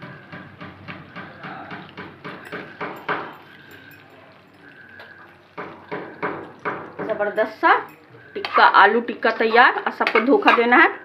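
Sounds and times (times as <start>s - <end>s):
metal ladle knocking on pot: 0.0s - 3.6s, 5.5s - 7.4s.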